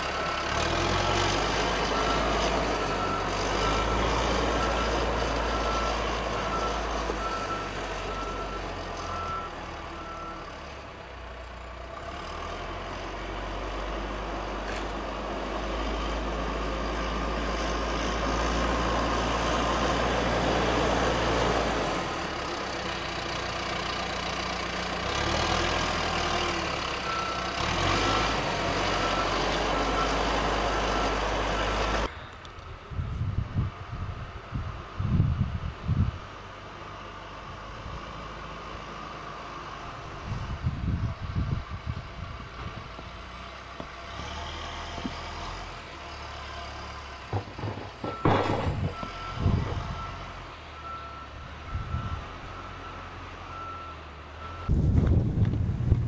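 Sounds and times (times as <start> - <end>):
diesel engine running: 0.0 - 56.0
reversing alarm beeping: 0.1 - 10.6, 48.0 - 54.8.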